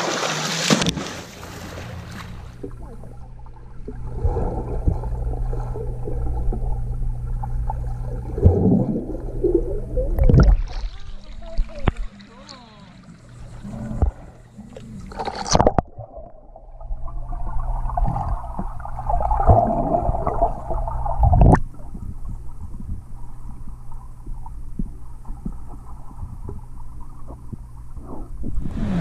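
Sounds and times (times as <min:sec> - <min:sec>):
water splashing: 0:00.0 - 0:29.0
underwater bubbling and gurgling: 0:02.3 - 0:29.0.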